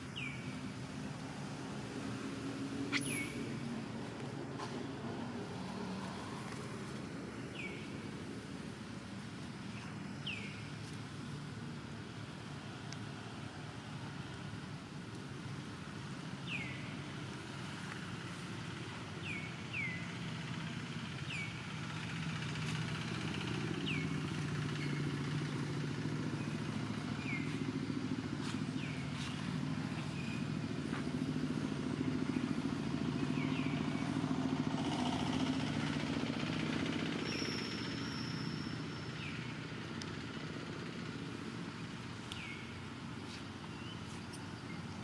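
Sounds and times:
vehicle engine running: 0:00.0 - 0:45.0
high downward-sliding chirp: 0:02.9 - 0:03.8.

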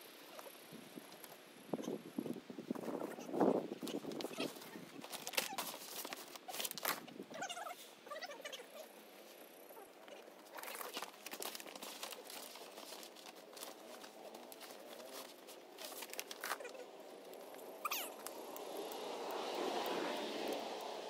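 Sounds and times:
plastic sheeting crinkling: 0:02.8 - 0:08.6, 0:10.1 - 0:18.4.

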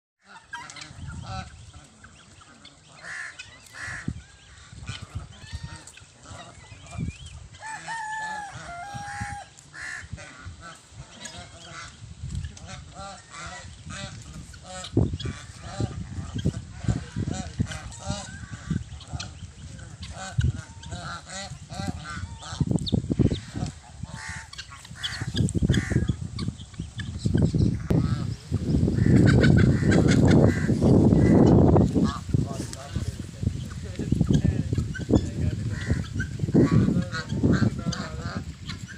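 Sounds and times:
chickens and guineafowl calling: 0:00.2 - 0:38.9.

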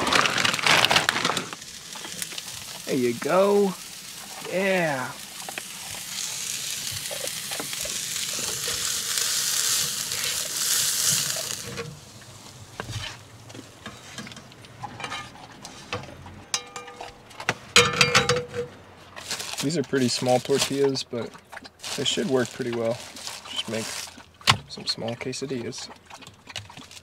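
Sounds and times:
steak sizzling in a frying pan: 0:01.5 - 0:12.2
metal utensils scraping a pan: 0:13.8 - 0:15.9
metal clatter: 0:16.4 - 0:18.8.

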